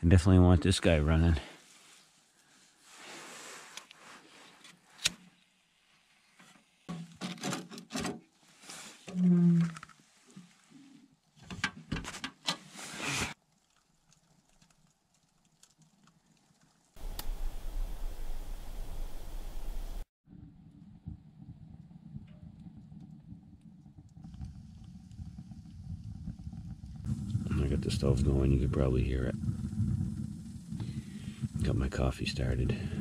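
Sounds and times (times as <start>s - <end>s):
low hum: 17.0s - 33.0s.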